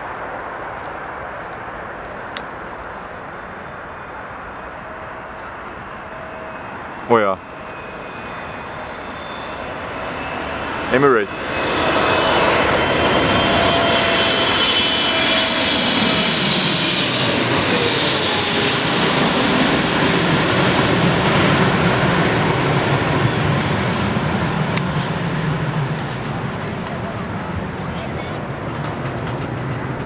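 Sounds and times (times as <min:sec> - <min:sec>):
jet airliner passing overhead: 0:00.0 - 0:30.0.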